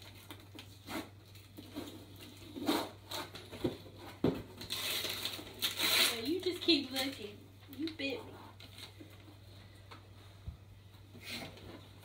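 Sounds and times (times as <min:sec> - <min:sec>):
cardboard and paper rustling: 0:00.0 - 0:07.3.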